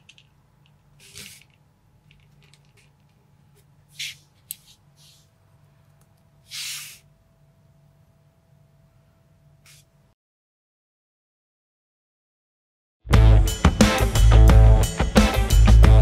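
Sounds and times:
plastic toy parts rustling: 0.0s - 3.3s.

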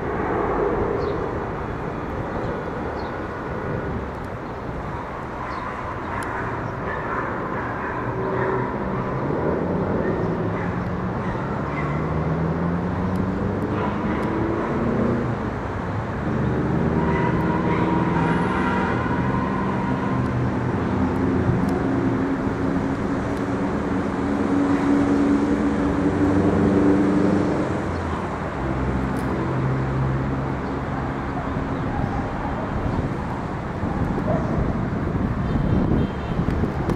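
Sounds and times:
jet engine rumble and whine: 0.0s - 11.5s.

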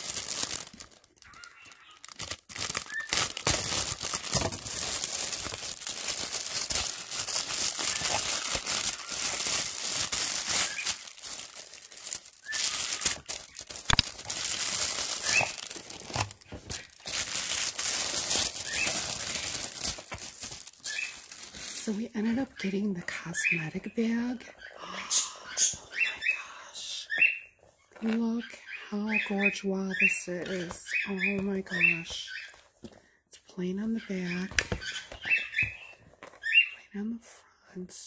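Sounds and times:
packaging crinkling: 0.0s - 22.5s.

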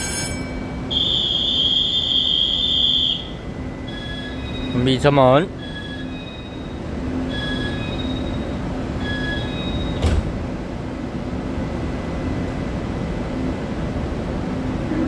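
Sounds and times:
train rumble and hum: 0.0s - 15.0s
door-warning beeps: 0.9s - 4.9s, 5.6s - 10.2s
train doors banging shut: 9.2s - 10.4s.

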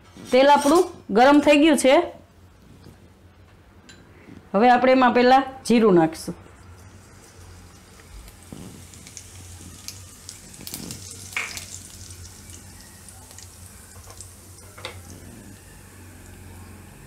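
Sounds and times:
seeds sizzling in hot oil: 6.4s - 17.0s
small pops and crackles: 7.9s - 12.0s.

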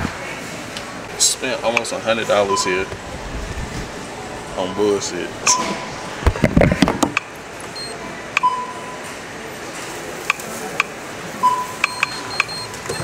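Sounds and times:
short electronic beeps: 2.5s - 2.9s, 4.6s - 5.9s, 7.8s - 9.0s, 11.4s - 13.0s.

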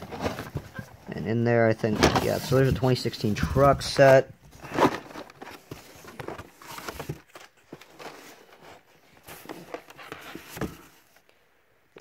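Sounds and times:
plastic packaging rustling: 3.4s - 11.1s.

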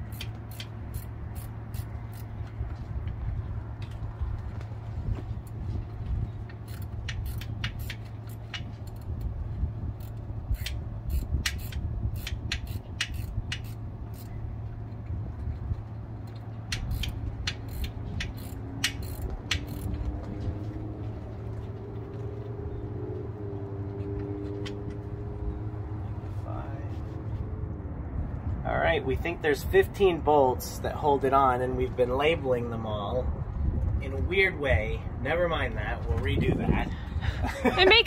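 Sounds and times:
hand ratchet clicking: 0.0s - 2.3s, 6.5s - 9.3s, 10.0s - 14.3s, 16.2s - 19.9s.

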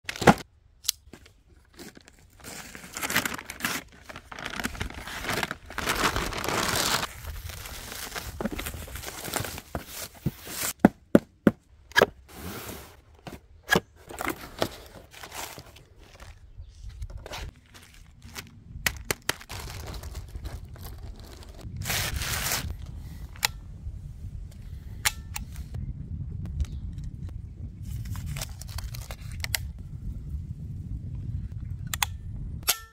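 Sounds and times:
plastic and cardboard rustling: 0.0s - 0.4s, 1.1s - 22.7s
plastic packaging crinkling: 1.6s - 10.7s, 17.3s - 22.7s.

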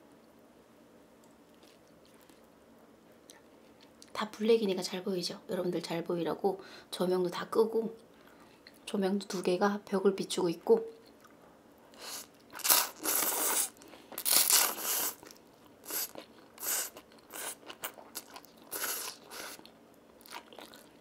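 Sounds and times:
slurping and chewing noodles: 12.0s - 21.0s.

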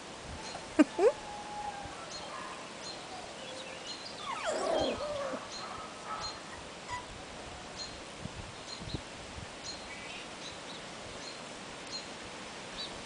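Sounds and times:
puppies whining and yelping: 4.2s - 5.5s, 6.4s - 7.1s.

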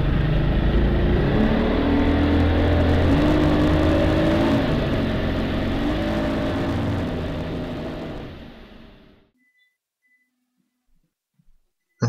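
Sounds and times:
motorboat engine running: 0.0s - 9.2s.

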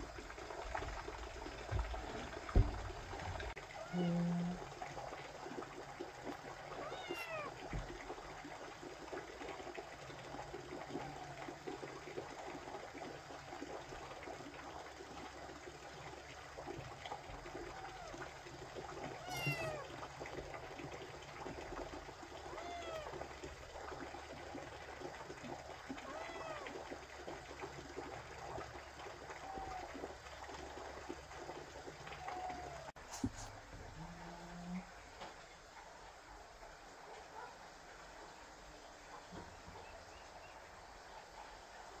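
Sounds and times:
kittens meowing: 6.8s - 7.5s, 19.2s - 19.8s.

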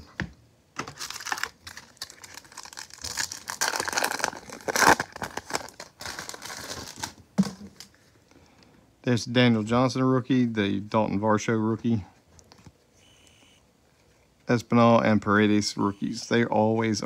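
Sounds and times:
foil wrapper crinkling: 0.8s - 7.2s.

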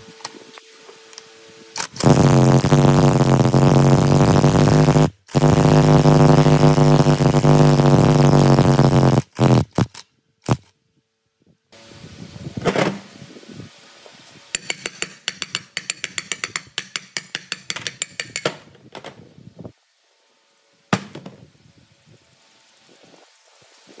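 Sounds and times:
hammer tapping on metal: 14.6s - 18.6s.

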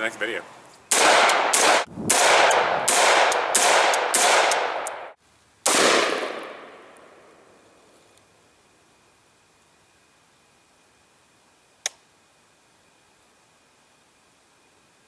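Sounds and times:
rifle shots: 0.9s - 7.5s.

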